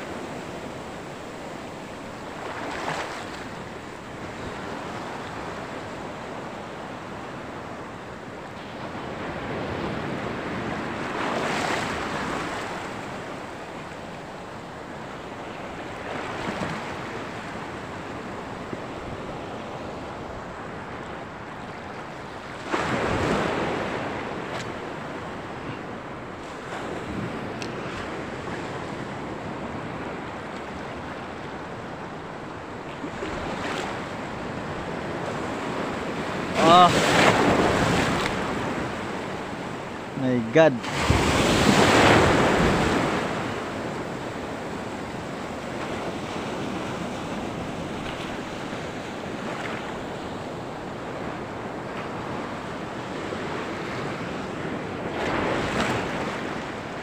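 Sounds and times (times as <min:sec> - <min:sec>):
sea water splashing: 0:34.8 - 0:39.7, 0:40.4 - 0:44.9.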